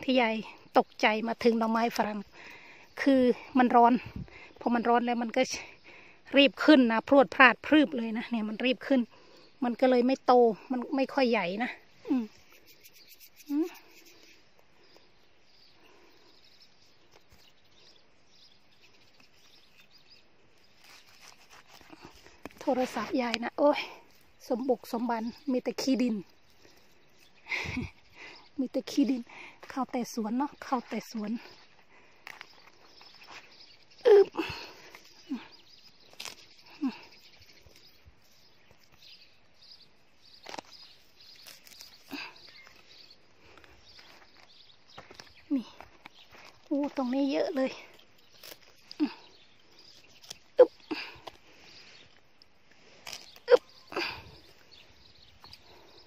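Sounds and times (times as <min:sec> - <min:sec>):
distant bird chirps: 0:00.0 - 0:56.0
footsteps in garden soil: 0:18.6 - 0:27.6, 0:29.0 - 0:56.0.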